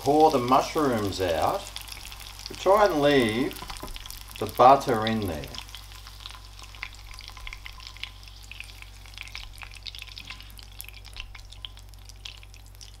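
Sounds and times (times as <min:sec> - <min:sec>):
butter sizzling in a frying pan: 0:00.0 - 0:13.0.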